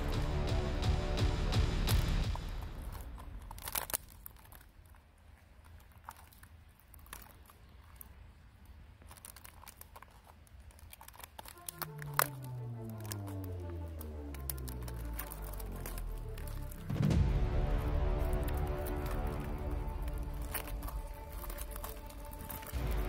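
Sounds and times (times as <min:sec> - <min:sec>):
background music: 0:00.0 - 0:03.9, 0:11.5 - 0:23.0
beetles clicking and scratching: 0:00.0 - 0:23.0.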